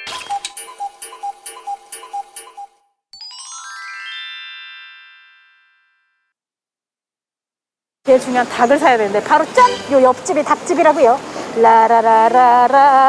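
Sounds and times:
clock ticking: 0.1 - 2.8.

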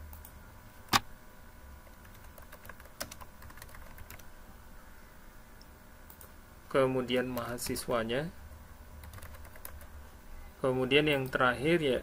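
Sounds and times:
typing on computer keyboard: 1.9 - 4.3, 9.0 - 9.9.

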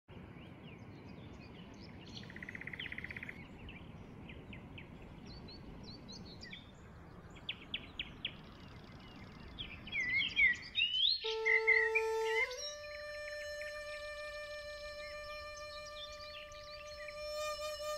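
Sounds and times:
outdoor background noise: 0.1 - 17.9
small birds chirping: 0.1 - 17.9
buzzy bird trill: 10.0 - 17.9
held musical note: 11.2 - 17.9.

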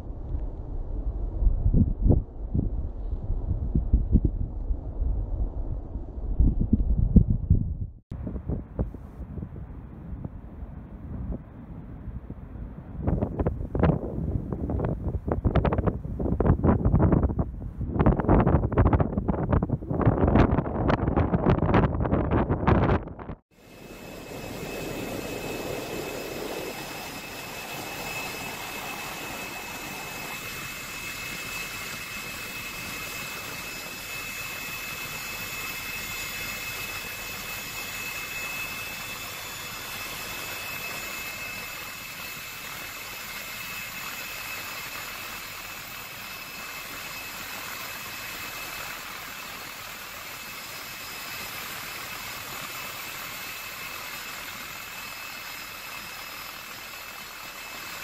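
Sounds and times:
high-pitched turbine whine: 0.0 - 58.0
helicopter engine and rotor noise: 13.0 - 58.0.

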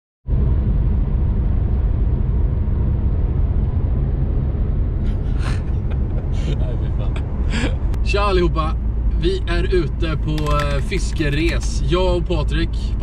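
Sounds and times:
car engine and road noise: 0.2 - 13.0.

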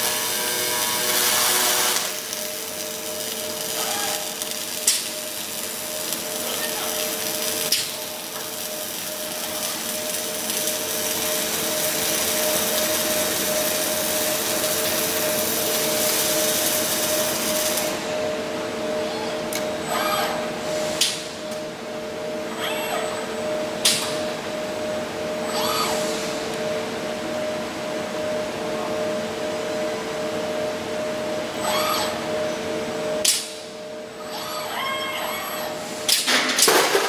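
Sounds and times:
welding arcs crackling hiss: 0.0 - 18.1, 19.3 - 21.8, 33.2 - 33.8, 34.5 - 37.0
machine hum: 0.0 - 37.0
robot arms whirring: 25.5 - 26.1.

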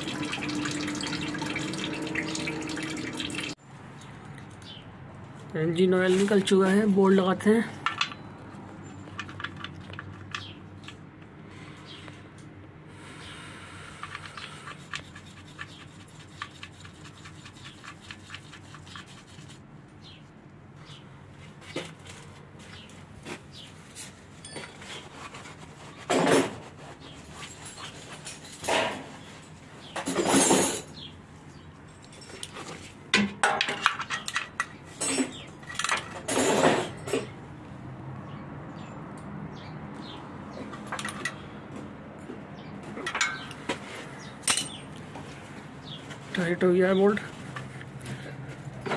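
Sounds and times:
metal bolt clicking and scratching: 8.8 - 11.0.

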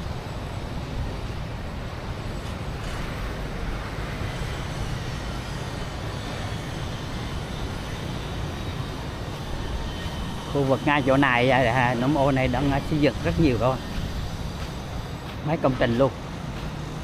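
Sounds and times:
vehicle rumble with hiss: 0.0 - 17.0.

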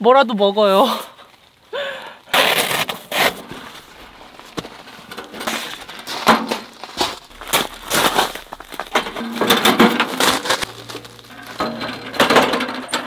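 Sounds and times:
footsteps on gravel: 2.3 - 11.8
bag rustling: 2.4 - 11.6
metal stove clinking: 11.2 - 13.0.

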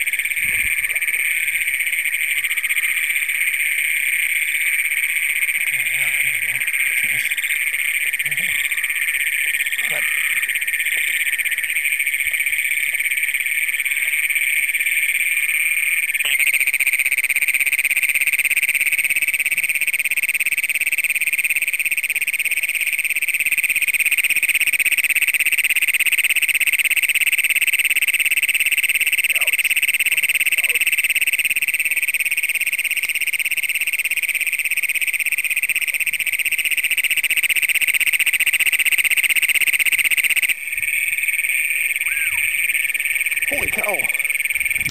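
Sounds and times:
loud toad trill close by: 0.0 - 19.2, 28.3 - 44.9
toads trilling chorus: 0.0 - 44.9.

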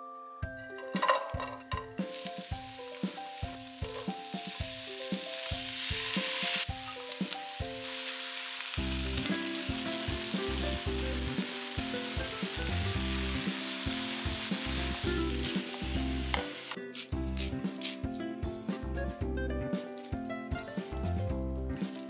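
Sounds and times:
food sizzling in a wok: 2.0 - 17.0.

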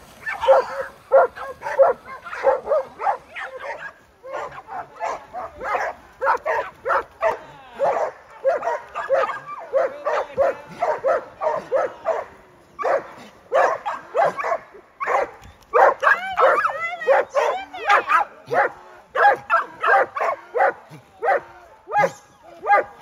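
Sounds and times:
dogs barking: 0.2 - 23.0
dog yelping: 8.0 - 10.2, 12.8 - 22.9.

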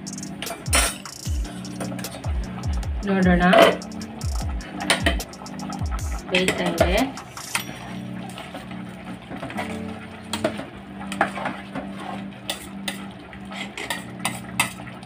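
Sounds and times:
spatula scraping metal pot: 11.2 - 14.8.

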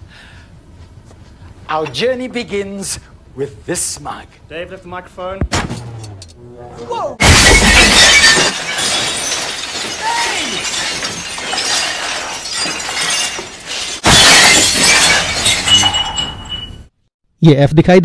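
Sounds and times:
crockery crashing and shattering: 7.2 - 16.9.

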